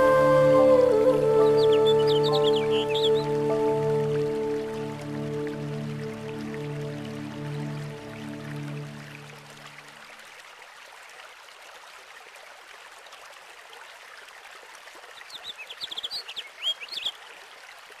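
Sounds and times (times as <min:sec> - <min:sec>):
stream running: 0:00.0 - 0:18.0
small bird chirping: 0:15.3 - 0:17.2.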